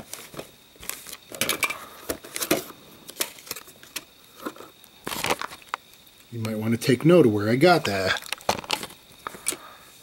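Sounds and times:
plastic blister packs crinkling: 0:02.2 - 0:06.6, 0:07.8 - 0:09.6.

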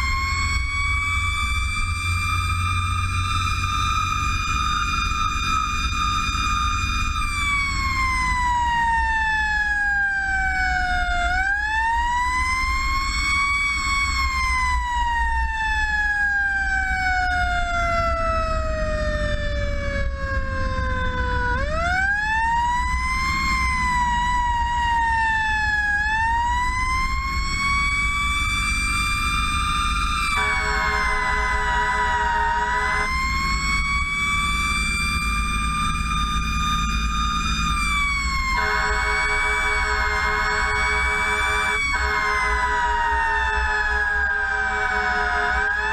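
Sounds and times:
fire engine siren wailing: 0:00.0 - 0:45.9
road noise: 0:00.0 - 0:45.9
truck engine rumble: 0:00.0 - 0:45.9
horn blast: 0:30.4 - 0:33.2, 0:38.6 - 0:42.7.

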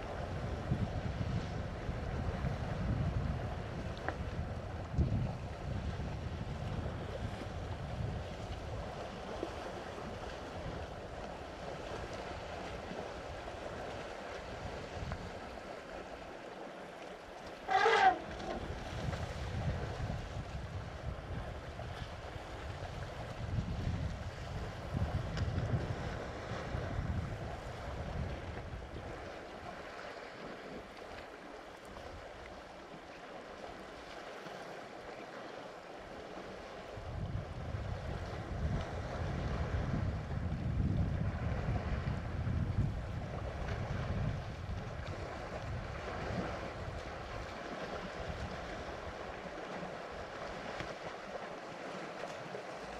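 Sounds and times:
wind rumble on microphone: 0:00.0 - 0:16.5, 0:17.4 - 0:52.9
water sloshing and splashing: 0:08.3 - 0:26.8, 0:43.2 - 0:52.9.

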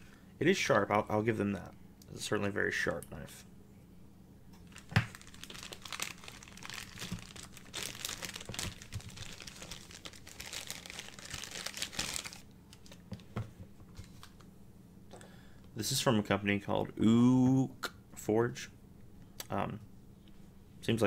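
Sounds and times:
plastic bag crinkling: 0:04.6 - 0:13.2.

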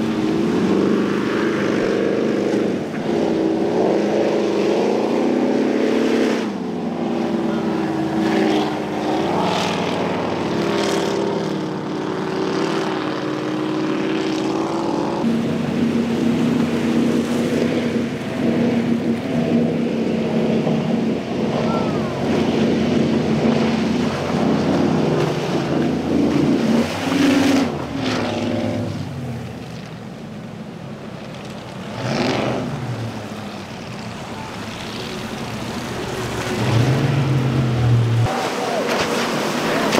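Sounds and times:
powerboat engines running hard: 0:00.0 - 0:39.9
rush of spray: 0:20.6 - 0:39.9.

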